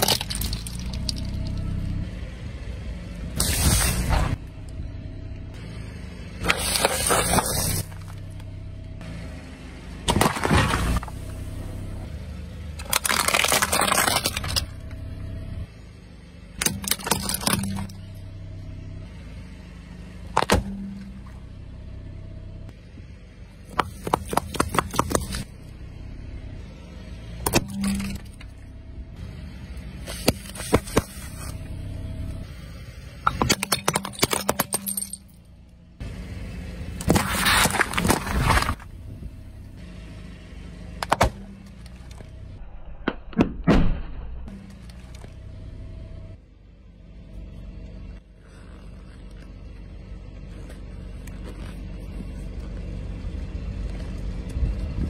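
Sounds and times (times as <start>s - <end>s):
car idling: 0.0s - 42.7s, 44.4s - 55.0s
tyre crushing objects: 10.1s - 11.1s, 23.7s - 25.4s, 37.0s - 38.9s.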